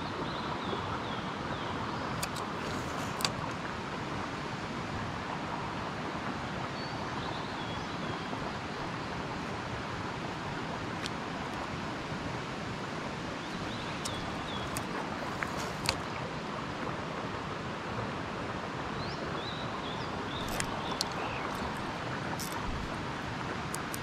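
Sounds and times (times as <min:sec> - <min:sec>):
rushing outdoor background noise: 0:00.0 - 0:24.0
sharp clicks: 0:02.2 - 0:03.5, 0:14.0 - 0:16.1, 0:20.4 - 0:22.7, 0:23.7 - 0:24.0.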